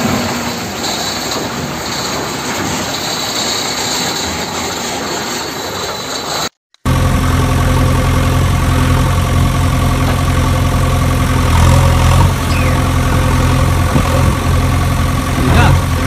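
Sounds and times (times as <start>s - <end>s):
engine idling: 6.8s - 16.0s.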